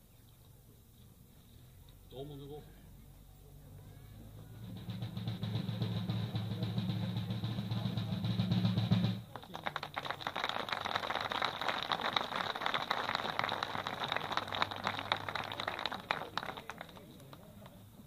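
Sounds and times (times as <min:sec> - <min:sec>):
drum roll: 0:04.6 - 0:09.3
crowd applauding: 0:09.2 - 0:17.8.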